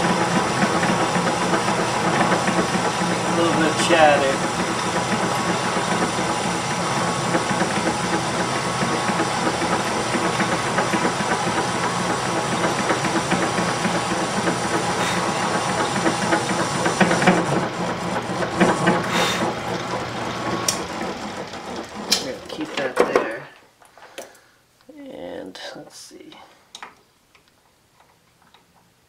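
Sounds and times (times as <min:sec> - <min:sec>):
lathe motor hum: 0:00.0 - 0:23.0.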